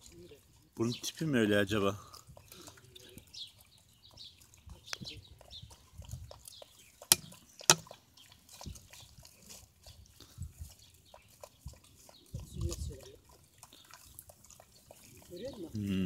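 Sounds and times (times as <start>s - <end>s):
puppies chewing wetly: 0.0s - 16.0s.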